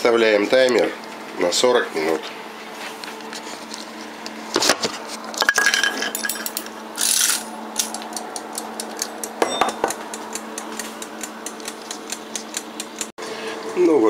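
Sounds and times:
kitchen timer ticking: 8.3 - 13.1.

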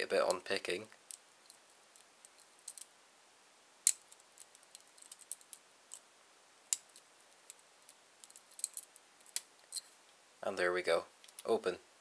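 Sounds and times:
lock pick scraping and clicking pins: 6.7 - 9.9.

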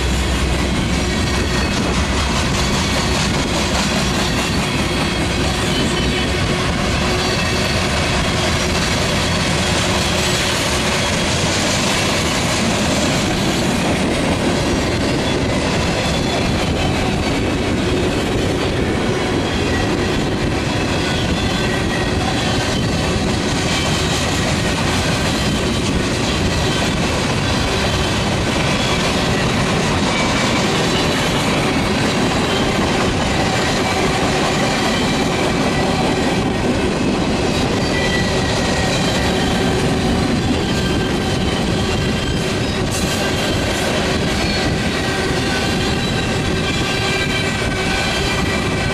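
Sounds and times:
train wheels clattering on rail: 0.0 - 48.9
wheel squeals: 37.5 - 48.7.

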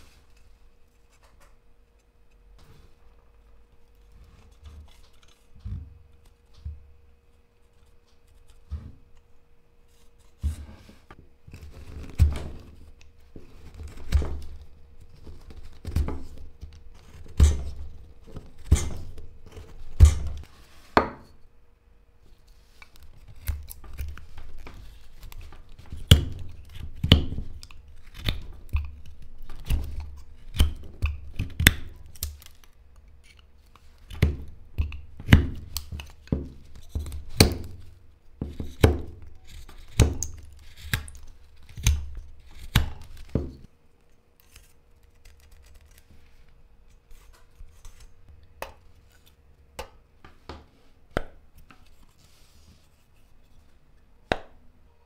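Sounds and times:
carving tools cutting wood: 38.4 - 43.4.

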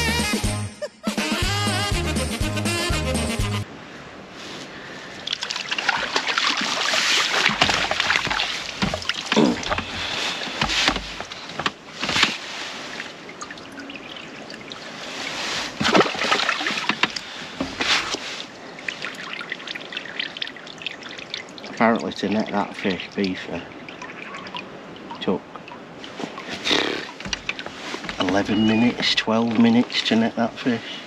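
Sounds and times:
fish splashing in a net: 5.2 - 21.8
water trickling off net: 5.2 - 30.5
knocks and rustles: 5.9 - 13.2, 15.3 - 18.5, 26.0 - 30.2.

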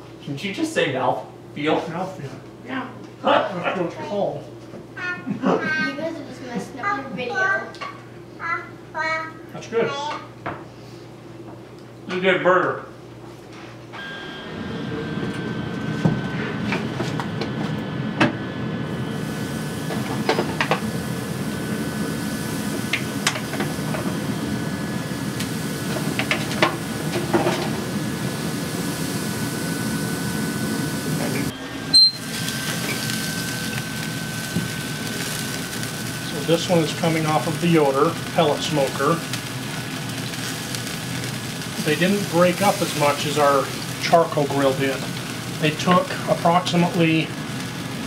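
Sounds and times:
smoker humming and whining: 0.0 - 48.0
burger patties sizzling: 14.0 - 48.0.

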